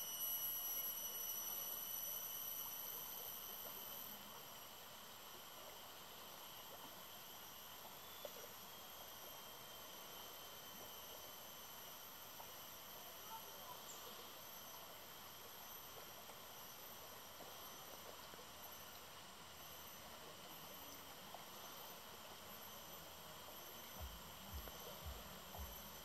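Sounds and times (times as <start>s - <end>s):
faint outdoor hiss: 0.0s - 26.0s
soft low thumps: 24.0s - 26.0s.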